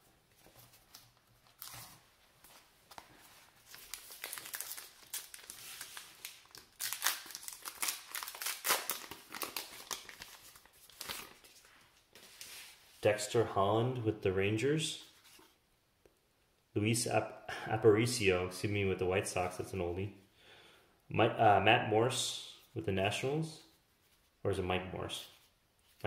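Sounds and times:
wrapper crinkling as torn open: 3.7s - 11.7s.

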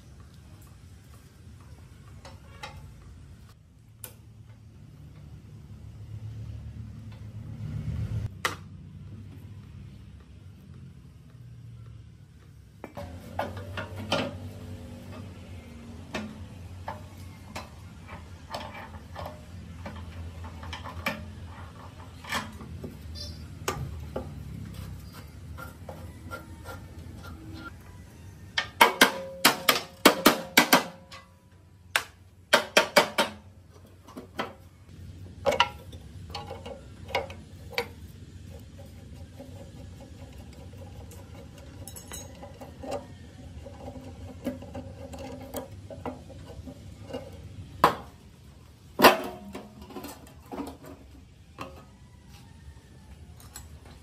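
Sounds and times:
hand tools clanking on metal: 16.0s - 27.6s, 28.5s - 31.5s, 38.8s - 48.2s.

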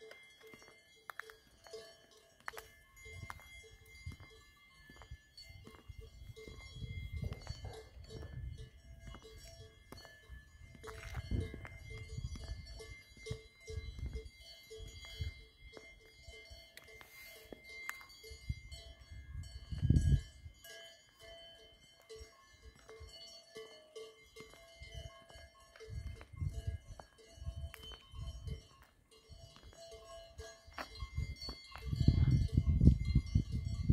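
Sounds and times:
cowbells clanking: 0.0s - 33.9s
wind rumbling on microphone: 3.0s - 15.6s, 18.3s - 20.6s, 24.8s - 29.8s, 30.4s - 33.9s.

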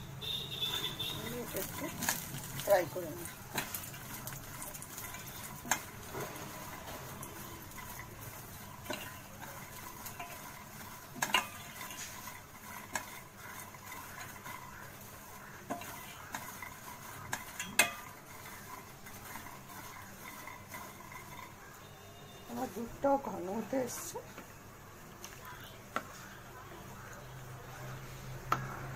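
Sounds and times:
nuts frying in oil: 0.0s - 28.9s
spatula scraping through nuts: 0.2s - 24.3s.

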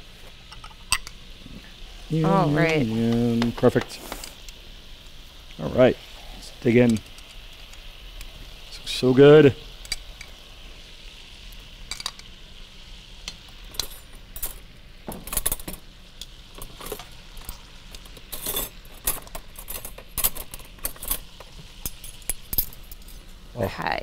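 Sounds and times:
faint sizzle from pan: 0.0s - 24.0s
metal tongs clinking on pot: 11.9s - 12.3s, 13.3s - 14.3s.

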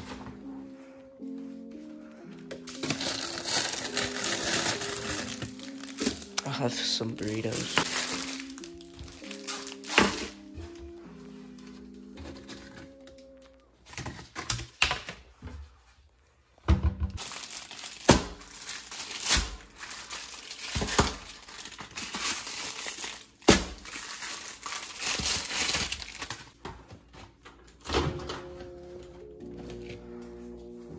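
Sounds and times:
plastic packaging crinkling: 2.6s - 10.5s, 17.2s - 26.9s.

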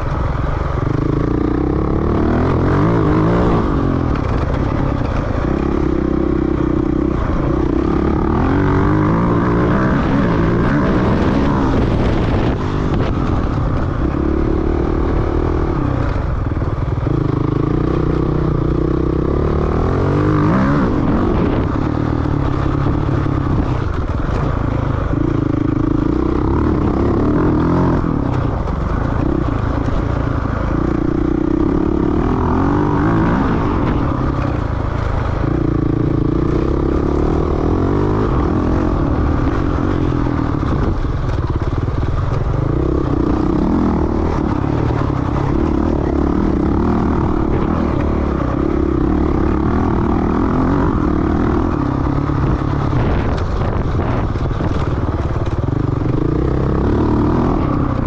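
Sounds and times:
off-road motorcycle engine revving: 0.0s - 58.0s.

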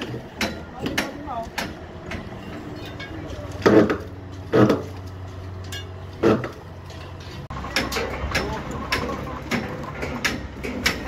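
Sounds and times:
heavy knocks on steel panels: 0.0s - 5.0s, 7.4s - 11.0s.

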